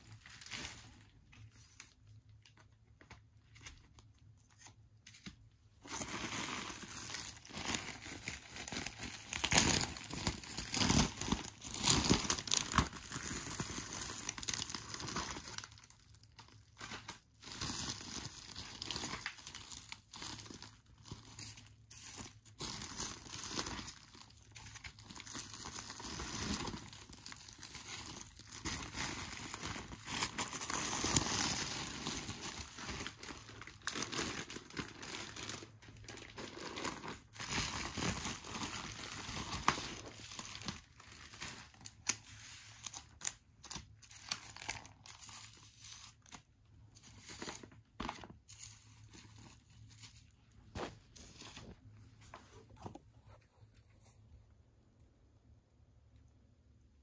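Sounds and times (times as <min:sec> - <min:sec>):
bubble wrap crinkling: 0:00.0 - 0:54.2.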